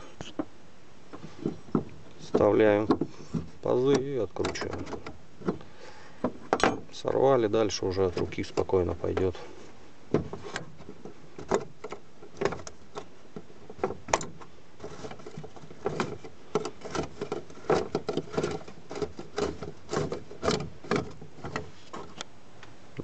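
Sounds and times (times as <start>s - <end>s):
ring nut clicking and scraping: 10.3s - 22.3s.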